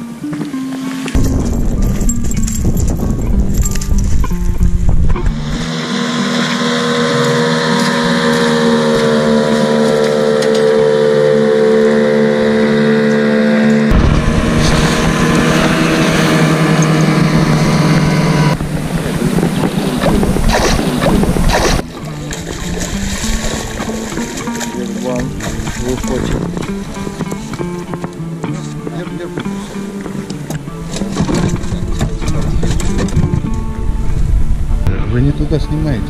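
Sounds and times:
outboard motorboat engine: 4.1s - 34.6s
rough uneven noise: 13.9s - 33.8s.

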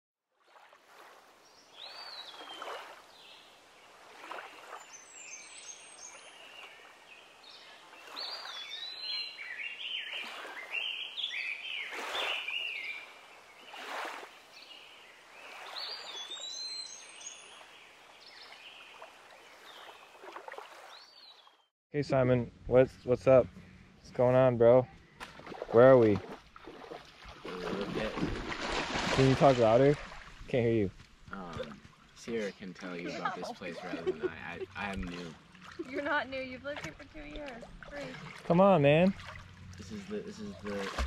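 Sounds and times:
small waves lapping: 0.3s - 21.6s, 24.9s - 41.0s
birds calling and singing: 1.4s - 21.7s, 22.9s - 26.4s.

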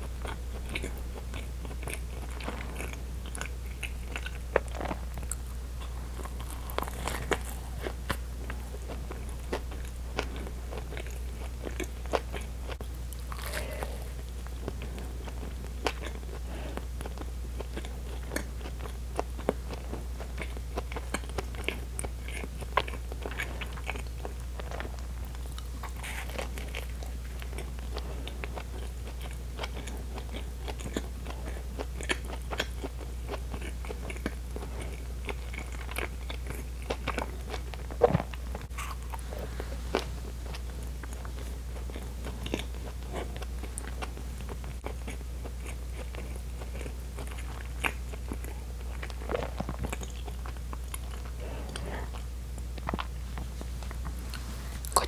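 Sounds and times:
low hum: 0.0s - 20.8s
bread crunching while chewed: 0.0s - 55.0s.

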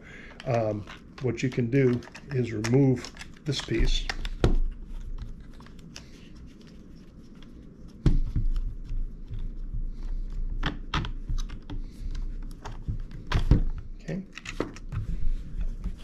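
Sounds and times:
plastic parts clicking: 0.3s - 4.4s.

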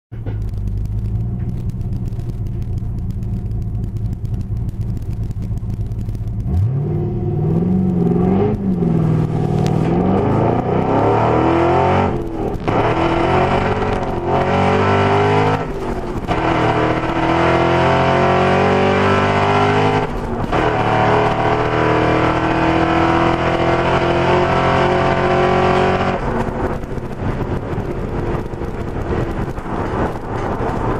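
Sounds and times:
wind and tyre noise: 0.1s - 30.9s
car engine revving through gears: 6.4s - 30.9s.

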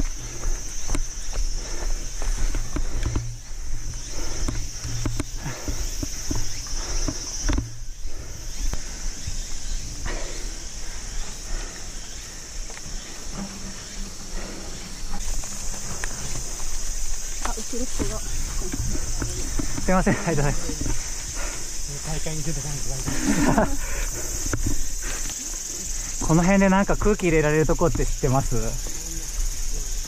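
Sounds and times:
bike tyre rumble on rocks: 0.0s - 26.7s
cicadas droning: 0.0s - 30.0s
bike clattering knocks: 13.2s - 21.1s.

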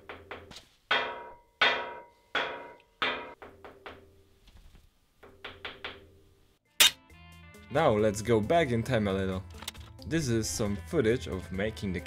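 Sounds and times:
knocking on ringing steel tubes: 0.0s - 4.1s.

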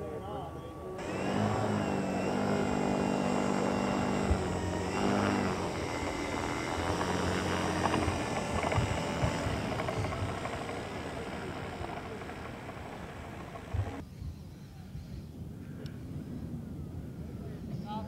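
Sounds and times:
model aircraft electric motor: 0.0s - 14.0s.

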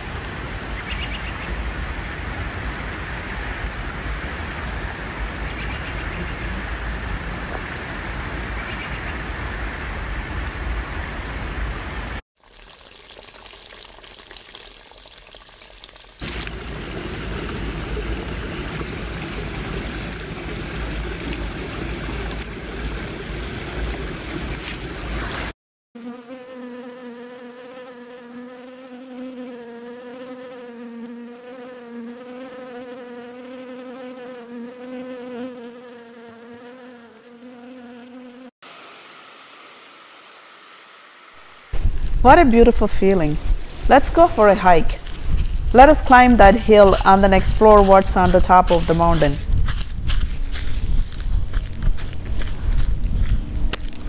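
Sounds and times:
flying insect buzzing: 26.0s - 38.6s.

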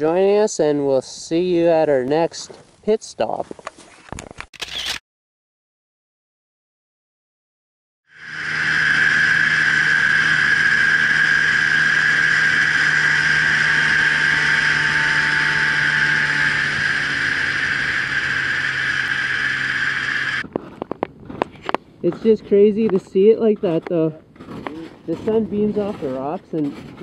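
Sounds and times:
snowmobile engine running: 8.1s - 20.4s, 22.1s - 27.0s.

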